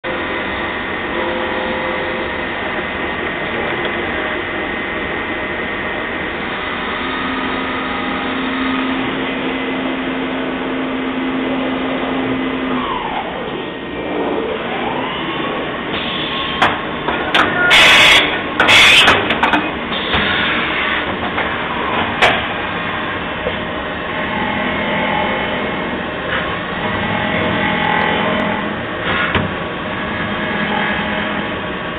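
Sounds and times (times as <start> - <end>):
machine hum: 0.0 - 31.9
machine whine: 0.0 - 31.9
loud bursts of noise: 0.1 - 31.9.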